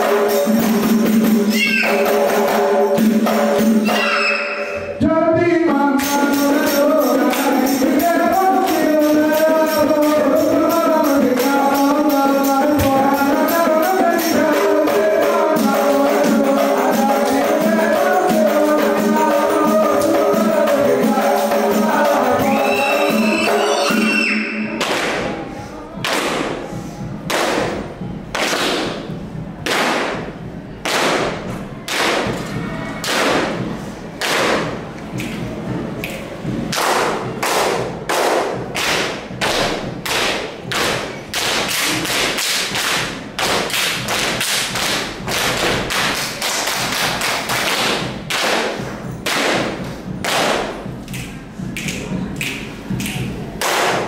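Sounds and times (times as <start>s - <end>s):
hands clapping in unison: 24.8s - 25.3s, 26.0s - 26.6s, 27.3s - 29.0s, 29.6s - 30.2s, 30.8s - 32.4s, 33.0s - 33.5s, 34.2s - 35.4s, 36.0s - 54.0s
hands slapping chests and thighs: 28.4s - 29.0s, 36.0s - 54.0s.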